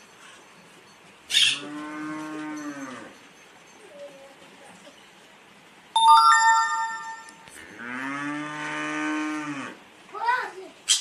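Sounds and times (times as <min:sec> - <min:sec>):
cow mooing: 0:07.6 - 0:09.8.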